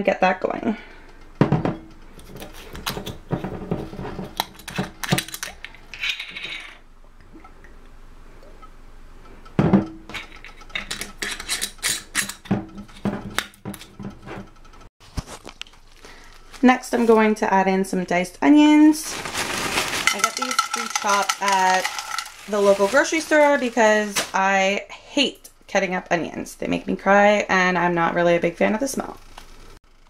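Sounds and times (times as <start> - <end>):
cookware and utensils clinking: 4.4 - 6.8, 9.6 - 13.4, 20.0 - 24.3.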